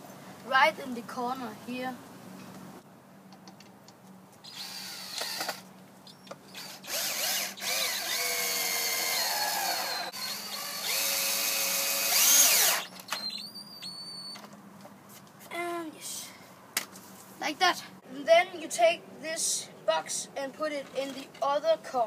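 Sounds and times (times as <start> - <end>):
cordless drill whining into wood: 4.4 - 5.6, 6.5 - 14.4.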